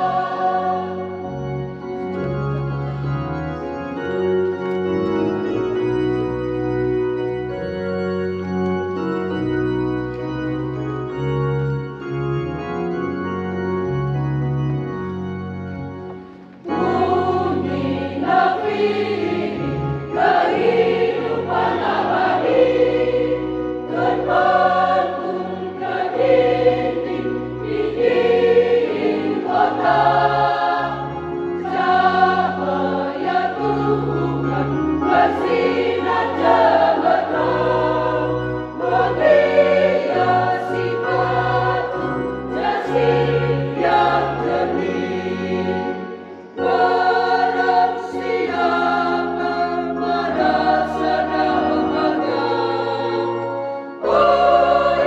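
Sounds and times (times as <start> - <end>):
choir singing hymn: 0.0 - 2.2, 16.2 - 55.0
organ accompaniment: 0.0 - 55.0.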